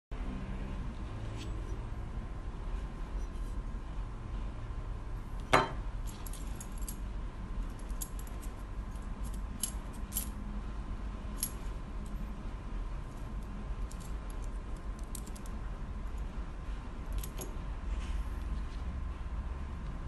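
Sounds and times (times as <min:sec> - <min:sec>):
small metal parts clinking: 0:07.6 - 0:10.4, 0:13.8 - 0:15.6.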